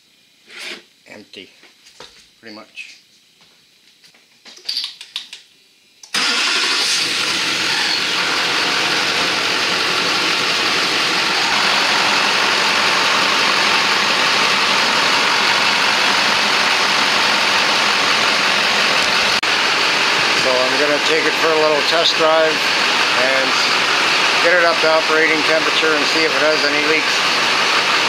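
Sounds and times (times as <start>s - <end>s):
diesel engine starting and running: 6.0s - 28.0s.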